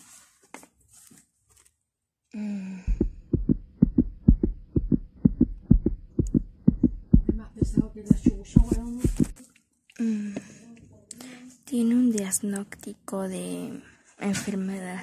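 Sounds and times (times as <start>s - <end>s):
heartbeat thumps: 2.9s - 9.4s.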